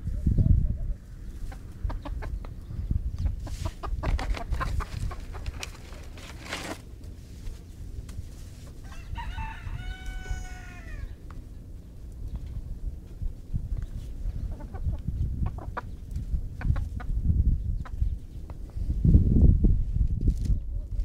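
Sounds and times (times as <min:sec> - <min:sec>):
chickens clucking: 0:00.1 - 0:06.4, 0:12.3 - 0:18.7
rooster crowing: 0:08.8 - 0:11.2.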